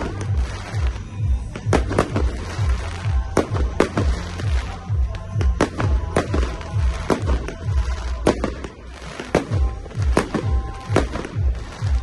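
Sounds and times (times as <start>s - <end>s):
fireworks bangs: 0.0s - 12.0s
music with bass-drum beat: 0.0s - 12.0s.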